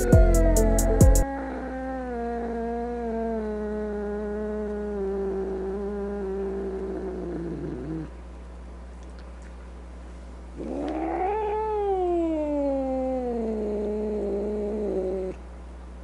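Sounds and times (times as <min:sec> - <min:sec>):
cat yowling: 0:10.6 - 0:15.4.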